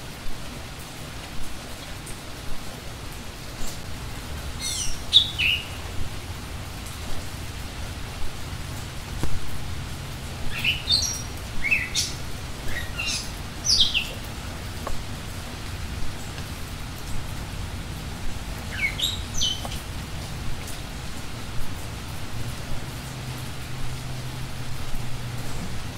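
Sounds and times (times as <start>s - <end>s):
steady outdoor hiss: 0.0s - 25.9s
songbirds chirping: 3.0s - 23.7s.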